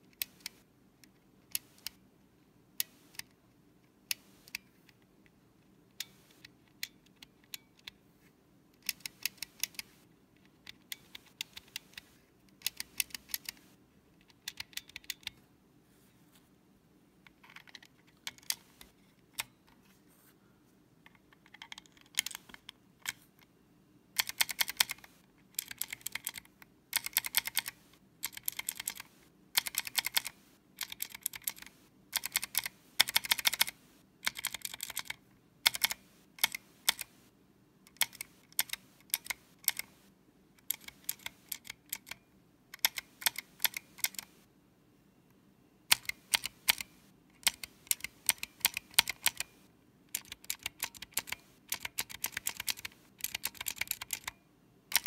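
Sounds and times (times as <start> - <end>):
mechanical keyboard typing clicks: 8.8 - 10.0, 10.6 - 15.4, 17.4 - 19.6, 21.4 - 23.2, 24.2 - 37.2, 37.9 - 40.0, 40.6 - 44.4, 45.9 - 55.0.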